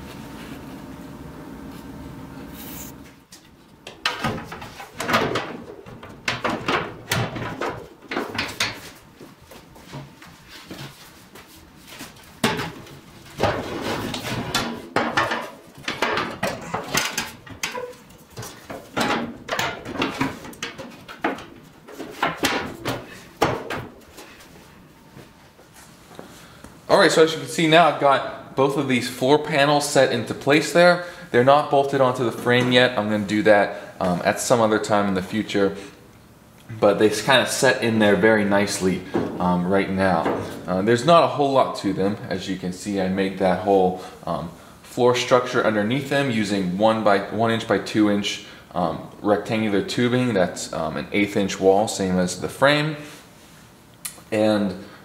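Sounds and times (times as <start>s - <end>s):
steady low hum: 0.0s - 52.6s
metal panels clattering on frame: 3.8s - 9.0s, 12.4s - 24.0s.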